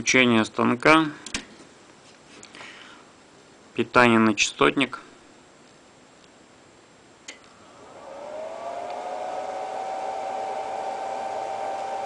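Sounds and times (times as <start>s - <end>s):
cooling fan whirring: 7.1s - 12.0s.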